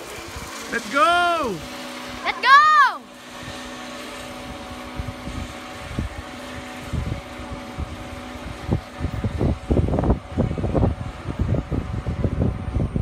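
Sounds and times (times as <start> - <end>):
wind buffeting microphone: 3.3 - 13.0.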